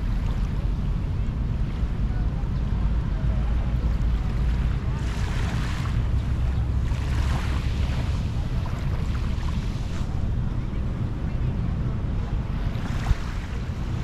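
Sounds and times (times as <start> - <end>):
wind buffeting microphone: 0.0 - 14.0
small waves washing on sand: 1.4 - 10.5, 12.1 - 14.0.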